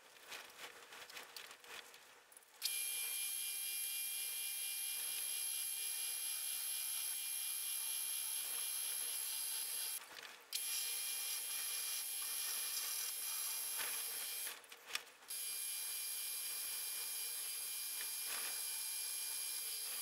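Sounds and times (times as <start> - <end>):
drill whining into metal: 2.6 - 10.0, 10.6 - 14.5, 15.3 - 20.0.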